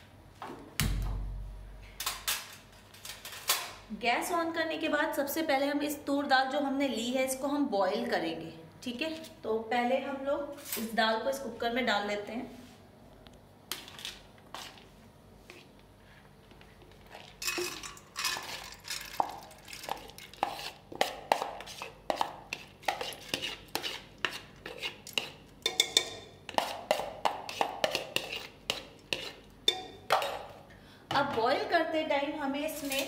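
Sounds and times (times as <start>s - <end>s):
metal spoon tapping plastic bowl: 25.6s - 28.0s.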